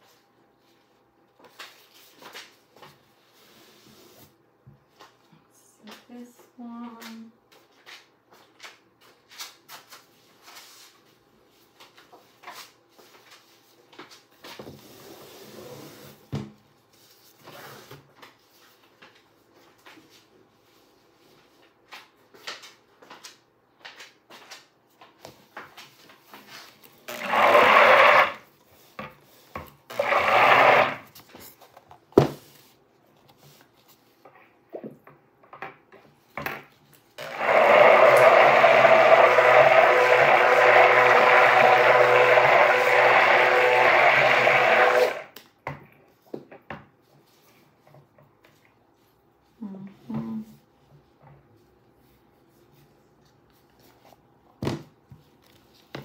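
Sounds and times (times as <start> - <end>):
stick blender whirring: 27.0 - 28.5, 29.8 - 31.1, 37.2 - 45.4.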